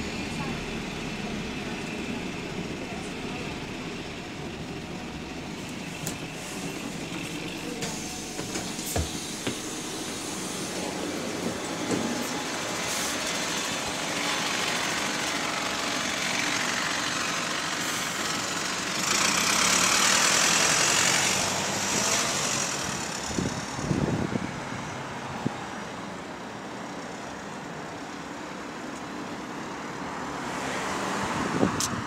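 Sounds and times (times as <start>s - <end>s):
bus diesel engine pulling away: 0.0s - 32.0s
loud air hiss: 7.8s - 11.4s.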